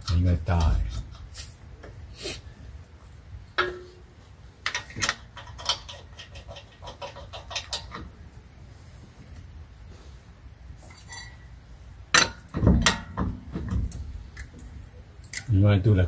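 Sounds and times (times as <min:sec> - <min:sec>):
lug nuts clicking and clinking: 0:03.6 - 0:08.2, 0:12.1 - 0:14.6.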